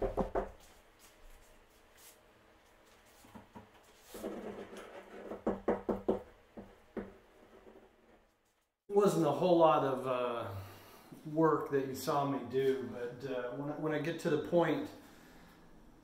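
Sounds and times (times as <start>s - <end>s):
paint strokes on canvas: 0.6s - 4.2s.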